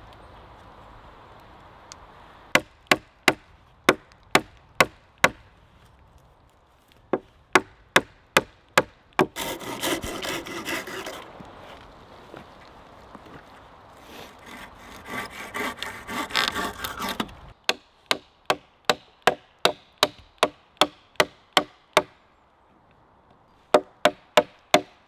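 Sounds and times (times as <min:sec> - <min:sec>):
sharp wooden knocks: 0:07.1 - 0:11.0
hand saw cutting wood: 0:09.2 - 0:11.4, 0:14.1 - 0:17.4.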